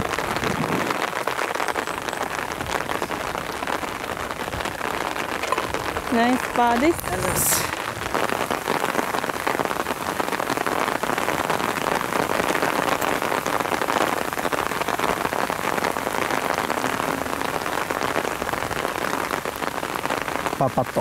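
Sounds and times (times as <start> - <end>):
steady rain falling: 0.0 - 21.0.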